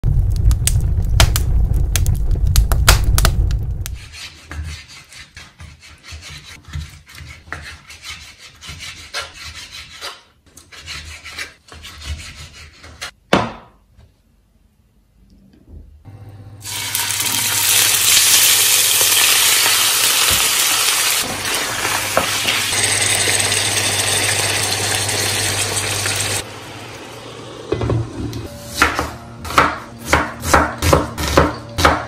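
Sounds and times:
low rumble with sharp clicks: 0:00.0 - 0:04.0
knife sawing meat on wooden board: 0:04.0 - 0:13.1.

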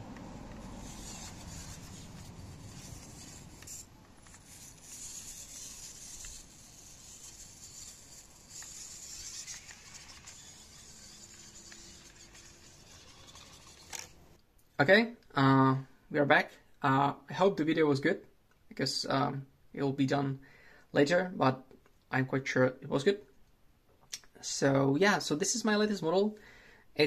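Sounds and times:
small electric motor whirring: 0:00.1 - 0:14.3.

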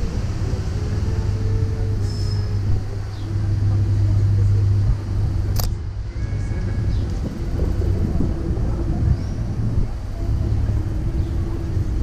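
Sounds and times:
electric unicycle rolling on pavement: 0:00.0 - 0:12.0
wind on microphone: 0:00.0 - 0:12.0
sharp click: 0:05.5 - 0:05.8.

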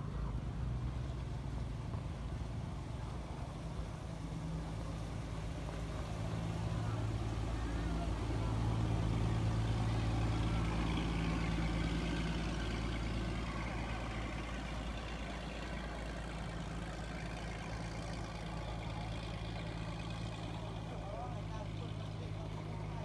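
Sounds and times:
boat engine running: 0:00.0 - 0:23.0.

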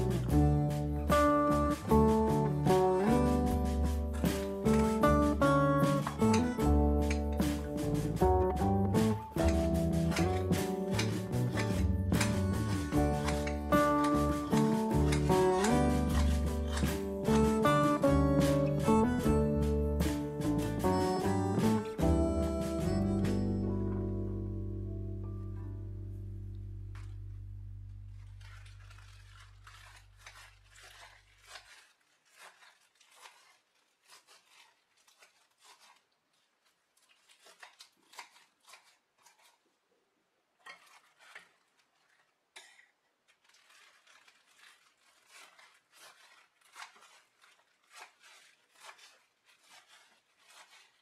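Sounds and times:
background music note: 0:00.0 - 0:28.3
knife slicing spinach: 0:00.4 - 0:08.3, 0:09.0 - 0:21.8, 0:28.3 - 0:39.6, 0:40.6 - 0:51.0.

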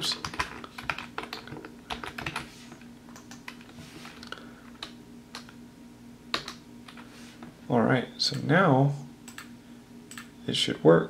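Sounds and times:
typing on computer keyboard: 0:00.0 - 0:02.4.

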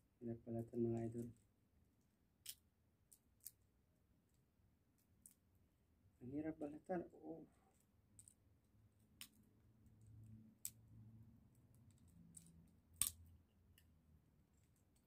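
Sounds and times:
faint low room hum: 0:00.0 - 0:15.0.

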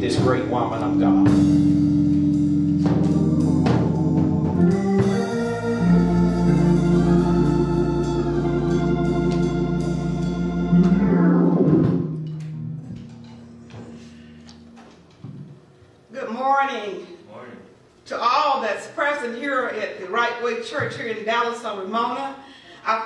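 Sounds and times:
deep bass note: 0:00.0 - 0:14.9
organ sustained chords: 0:00.0 - 0:15.2.

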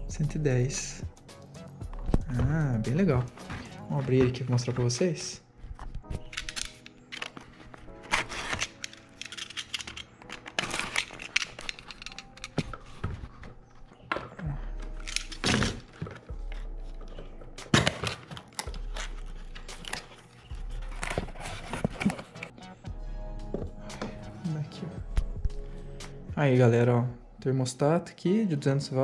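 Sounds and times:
cardboard scraping and tearing: 0:07.2 - 0:09.6, 0:17.7 - 0:22.5.

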